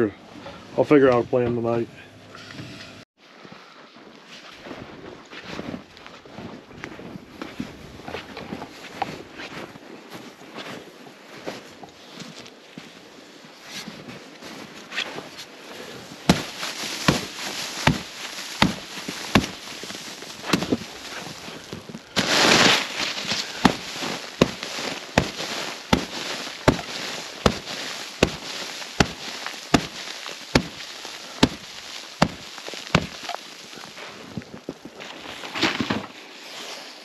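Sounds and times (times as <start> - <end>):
brush sweeping ice scraping: 13.6 - 34.4
brush beating ice sharp cracks: 22.3 - 33.4.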